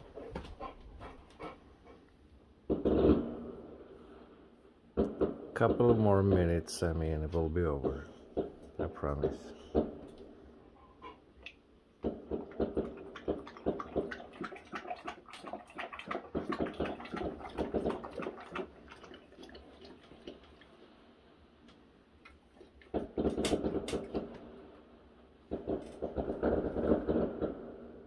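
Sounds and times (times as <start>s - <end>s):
fireworks cracking and popping: 2.6s - 3.9s, 5.0s - 6.6s, 7.7s - 10.3s, 12.0s - 14.3s, 22.7s - 24.8s, 25.5s - 28.0s.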